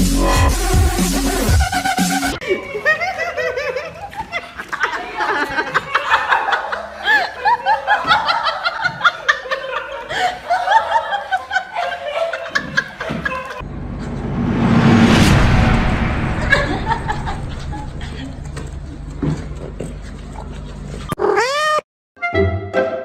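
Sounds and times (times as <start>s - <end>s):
people laughing and giggling: 1.7s - 13.6s.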